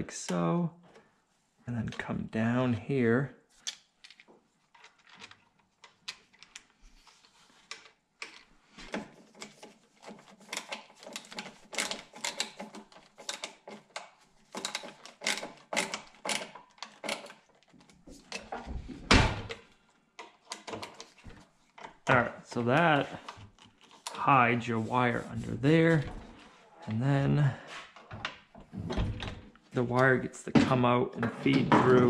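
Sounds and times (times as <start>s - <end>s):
screwdriver clicking and scraping: 4.8s - 18.5s.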